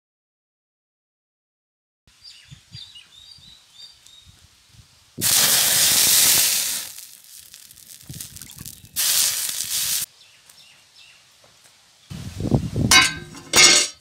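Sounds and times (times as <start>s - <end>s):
water hissing on hot griddle: 4.4s - 10.1s.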